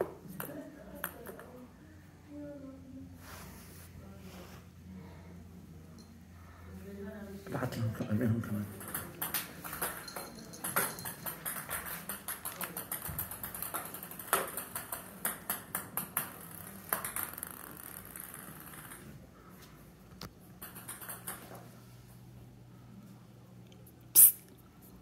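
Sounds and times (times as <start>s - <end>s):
ping-pong balls bouncing on tile: 0.0s - 1.6s, 7.8s - 19.2s, 20.2s - 21.9s.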